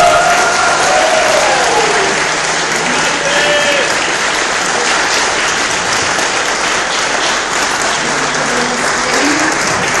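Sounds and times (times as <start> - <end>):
cheers and shouts: 0.0 - 4.2
audience applauding: 0.0 - 10.0.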